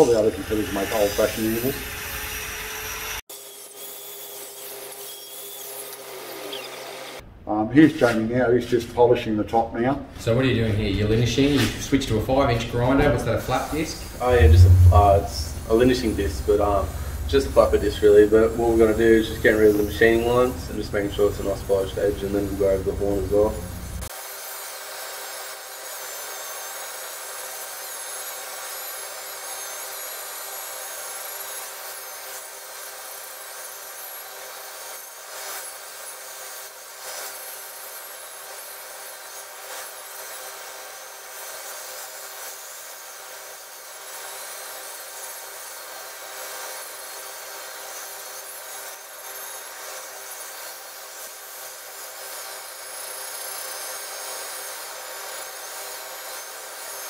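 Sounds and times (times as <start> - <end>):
angle grinder motor whine: 0.0 - 3.8, 14.0 - 24.1.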